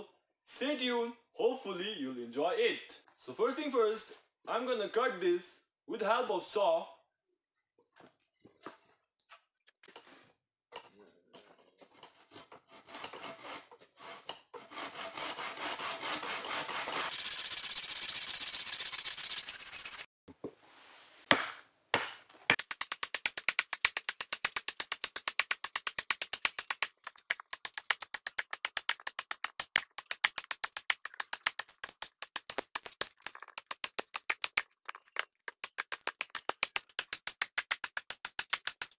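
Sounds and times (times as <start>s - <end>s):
hand saw cutting log: 12.2s - 20.0s.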